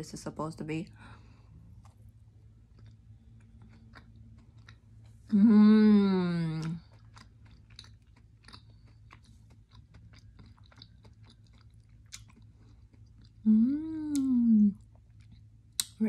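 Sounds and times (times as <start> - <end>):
soft chewing: 1.2 - 5.5, 6.2 - 16.0
person humming: 5.3 - 6.8, 13.5 - 14.8.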